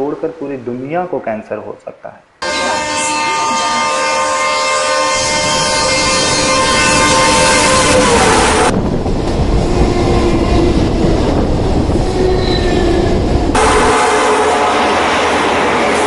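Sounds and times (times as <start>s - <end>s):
train wheels rumbling on rails: 5.2s - 16.0s.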